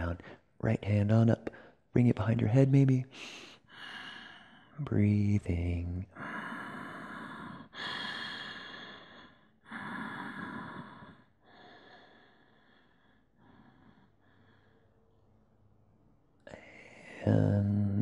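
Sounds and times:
man breathing slowly: 3.1 - 4.8, 6.1 - 15.3.

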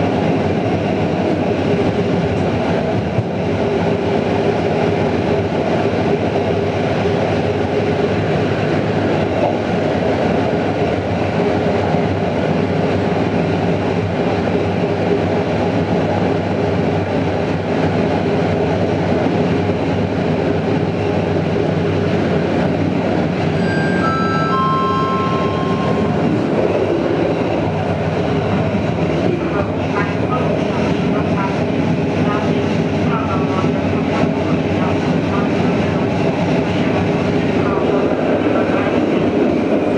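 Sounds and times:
train rumbling on rails: 0.0 - 39.9
three-note falling tone: 23.6 - 26.5.

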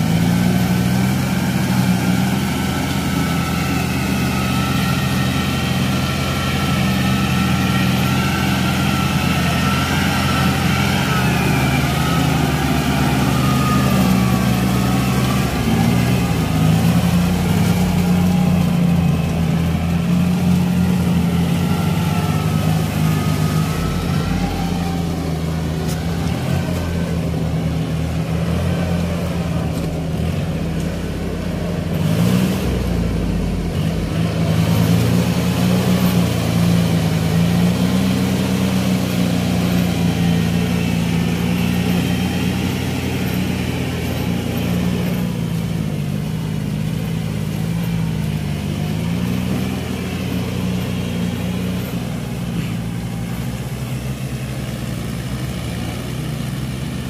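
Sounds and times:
high wavering whine: 0.0 - 31.9
tractor diesel engine under load: 0.0 - 57.0.

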